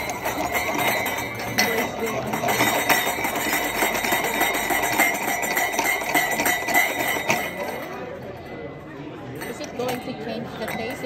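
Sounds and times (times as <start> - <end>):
glass bases scraping on wood: 0.0 - 8.0
light glass clinks: 0.0 - 8.1, 9.3 - 11.0.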